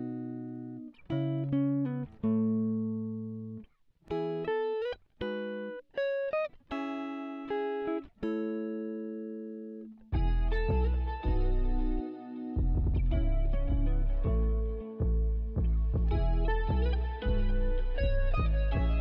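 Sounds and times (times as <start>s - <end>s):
backing and bass: 10.2s - 12.0s, 12.6s - 19.0s.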